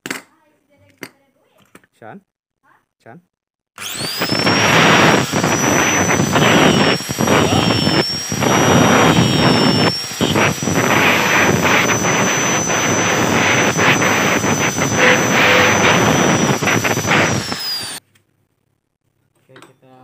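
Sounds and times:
angle grinder grinding steel: 3.8 - 18.0.

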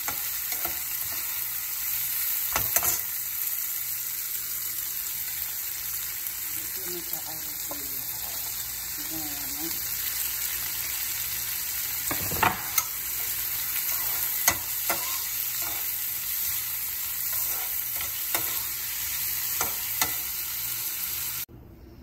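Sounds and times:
vegetables sizzling in frying pan: 0.0 - 21.5
metal spoon scraping pan: 12.2 - 16.6, 17.2 - 18.7.

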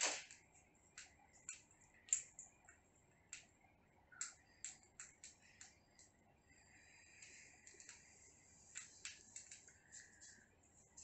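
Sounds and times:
parakeets clicking and tapping: 0.0 - 6.2, 8.7 - 10.4.

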